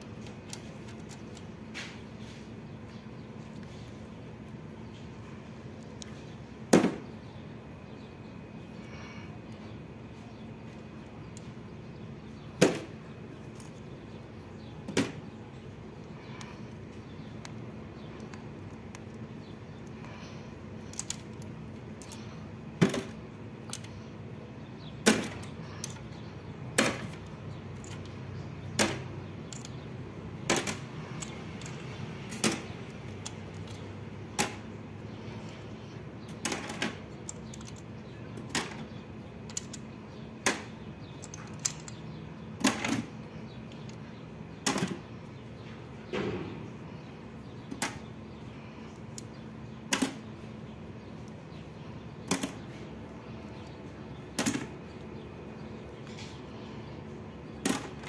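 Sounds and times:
faint steady hum: 0.0 - 58.0
sharp metallic clicks: 36.2 - 43.1, 52.2 - 52.8.

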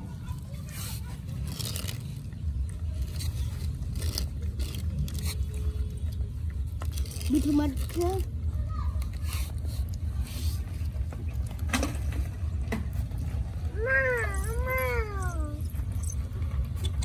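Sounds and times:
puppy whining: 13.8 - 16.2.

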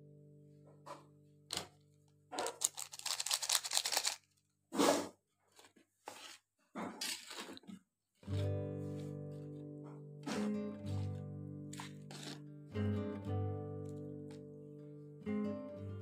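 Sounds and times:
plastic sachet crinkling: 2.4 - 4.4
metal spatula scraping wok: 11.8 - 12.4.

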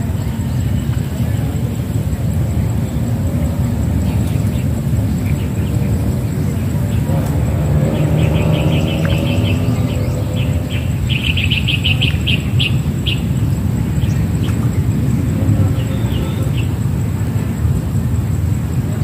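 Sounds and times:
steady low rumble: 0.0 - 19.0
bird chirping: 2.3 - 16.8.

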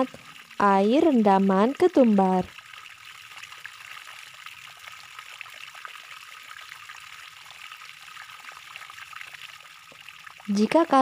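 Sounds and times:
water drips and splashes: 0.0 - 11.0
water trickling: 0.0 - 11.0.

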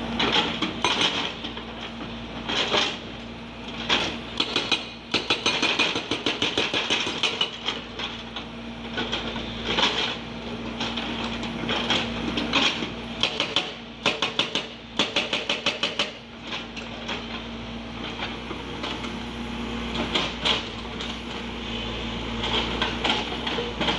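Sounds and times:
hydraulic breaker hammering rock: 3.9 - 7.8, 11.7 - 16.2
diesel engine humming: 16.3 - 23.9.

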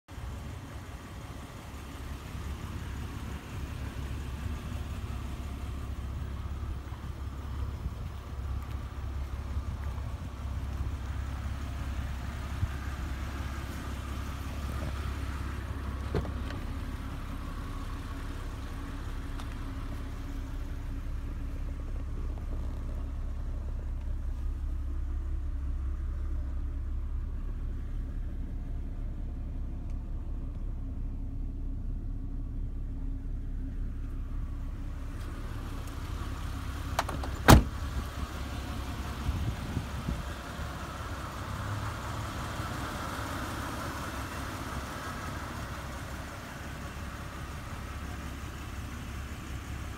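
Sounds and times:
car engine idling: 0.0 - 49.9
sharp thump: 37.0 - 37.8.

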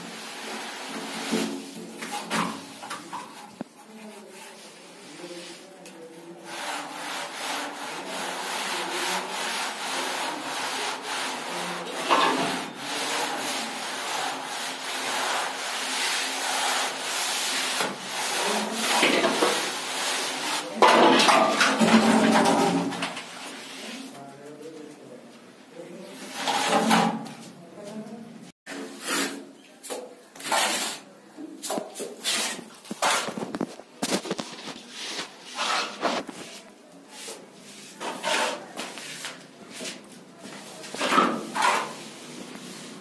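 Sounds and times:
wooden edge scraping wet plaster: 6.4 - 24.1, 28.7 - 31.1, 31.7 - 43.0.

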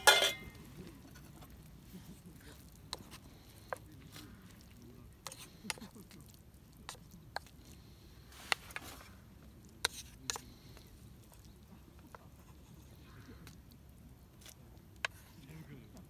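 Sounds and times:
wooden spatula scraping skillet: 0.0 - 4.6, 5.2 - 5.9, 8.2 - 9.2, 9.8 - 10.5.

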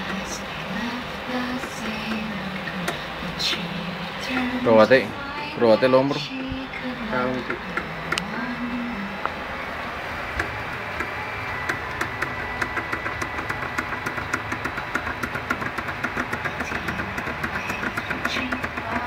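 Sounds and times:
motor whine: 0.0 - 19.0
rapid mechanical ticking: 0.0 - 19.0.

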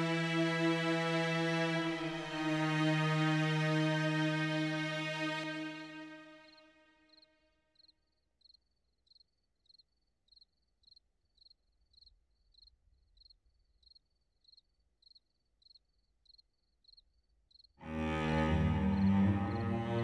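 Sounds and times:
faint cricket chirping: 6.4 - 17.8.

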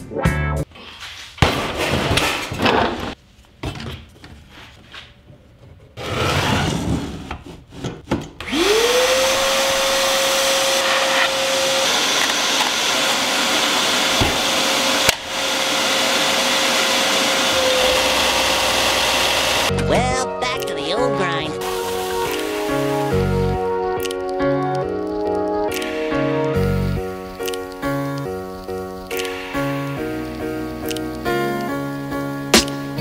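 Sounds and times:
shop vacuum motor whine: 8.4 - 19.7
loud rushing hiss: 21.6 - 23.2.

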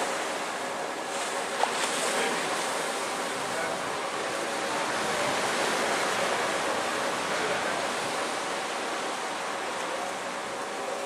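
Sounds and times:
ocean surf rushing: 0.0 - 11.0.

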